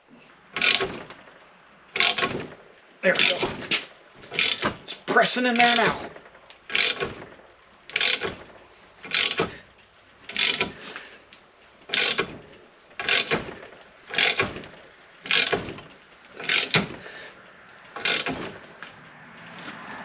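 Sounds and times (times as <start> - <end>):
ratchet wrench clicking: 0.6 - 1.2, 2.0 - 2.6, 3.2 - 3.5, 4.3 - 4.8, 5.6 - 9.6, 10.2 - 10.8, 11.9 - 12.4, 13.0 - 14.6, 15.2 - 15.6, 16.4 - 16.9, 18.0 - 18.5.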